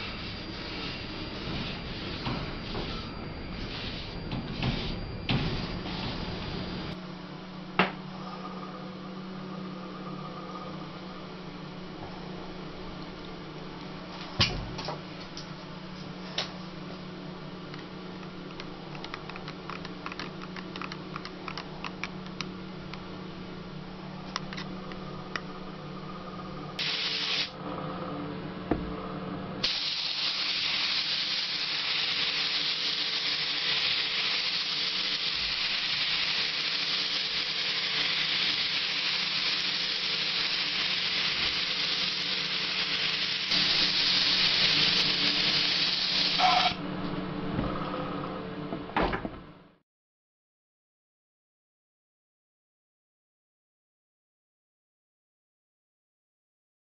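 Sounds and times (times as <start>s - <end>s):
low hum: 0.0s - 14.3s, 15.2s - 26.8s
paint spray gun hissing: 26.8s - 27.5s, 29.6s - 46.8s.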